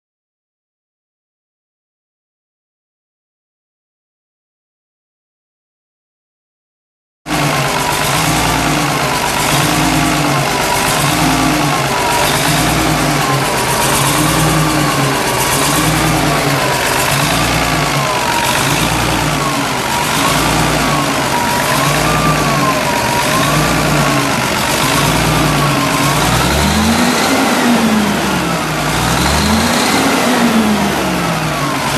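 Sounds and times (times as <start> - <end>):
diesel engine idling and revving: 7.3 - 31.9.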